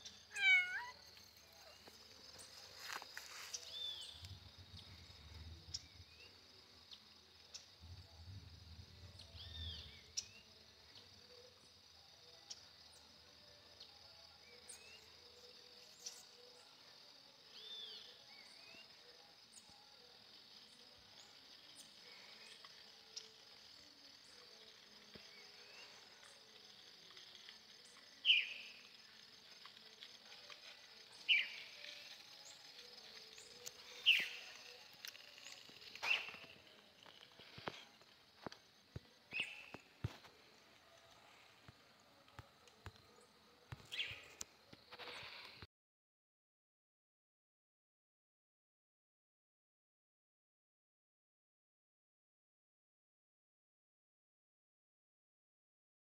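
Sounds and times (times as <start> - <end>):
bird chirps: 0.0 - 2.5, 27.2 - 29.0, 31.1 - 34.8, 35.4 - 36.8, 39.3 - 40.0, 43.8 - 44.4
crickets chirping: 0.0 - 45.7.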